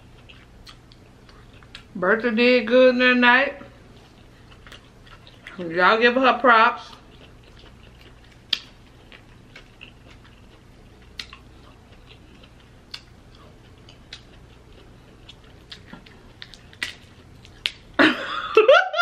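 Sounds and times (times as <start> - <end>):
crab shell cracking: 15.6 - 17.9.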